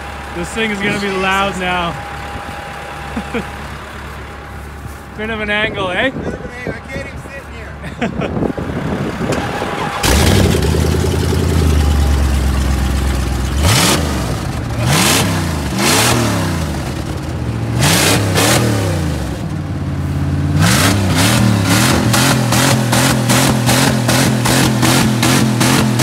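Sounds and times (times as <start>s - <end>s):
car engine revving: 8.6s - 26.0s.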